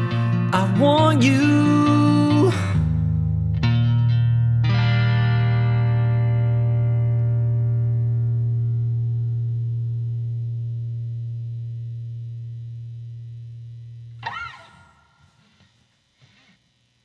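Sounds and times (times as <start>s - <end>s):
guitar note ringing out: 9.2s - 15.6s
short squeak: 14.2s - 15.0s.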